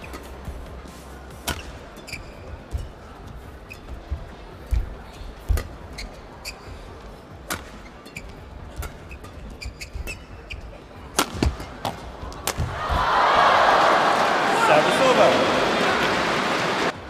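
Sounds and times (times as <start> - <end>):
rackets striking shuttlecock: 1.3 - 6.6, 7.4 - 13.0.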